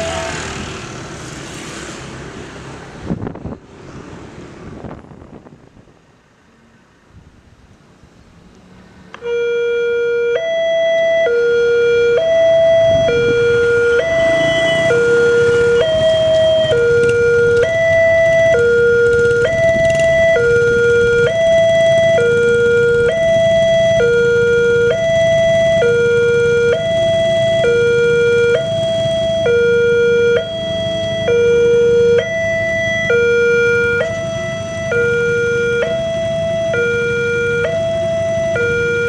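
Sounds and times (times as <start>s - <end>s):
level crossing two-tone alarm: 9.2s - 39.0s.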